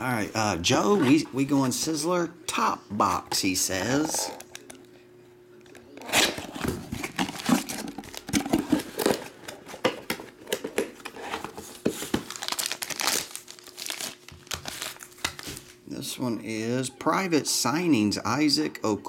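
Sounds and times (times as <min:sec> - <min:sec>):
packaging rustling and scraping: 0:06.0 - 0:15.8.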